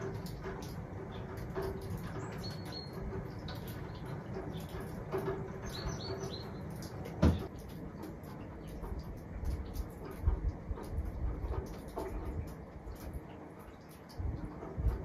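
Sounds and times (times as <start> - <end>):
meltwater dripping: 0.0 - 15.0
small birds chirping: 1.0 - 9.9.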